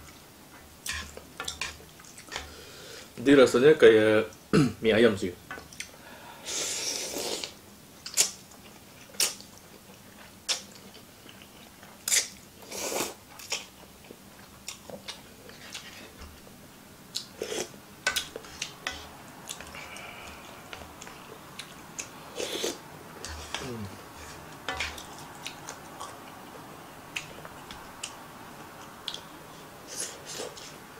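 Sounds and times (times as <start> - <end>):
person slurping noodles: 6.5 - 7.5.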